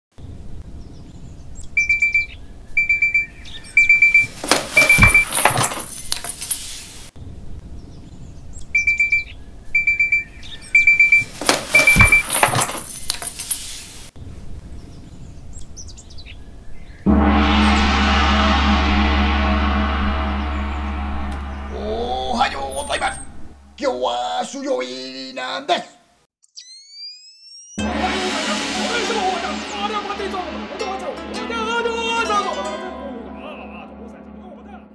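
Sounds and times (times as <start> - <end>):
alarm clock beeping: 1.9 - 5.6, 10.8 - 12.6
thump: 4.4 - 5.9, 11.4 - 12.9
gong-like musical swell: 17.1 - 23.8, 27.8 - 34.9
bird chirps: 26.4 - 27.8.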